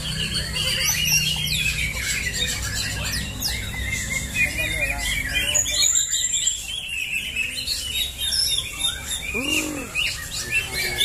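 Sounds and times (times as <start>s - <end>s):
birds chirping and whistling: 0.0s - 11.0s
lower bird call: 8.8s - 11.0s.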